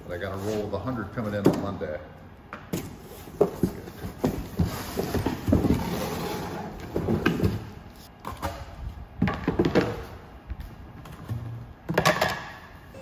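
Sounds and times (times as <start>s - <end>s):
cardboard rustling and scraping: 2.9s - 8.1s.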